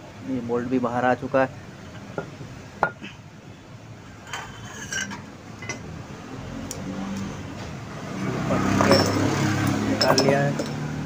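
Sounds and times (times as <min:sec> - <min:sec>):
metal parts clinking and knocking: 0:08.7 - 0:10.8.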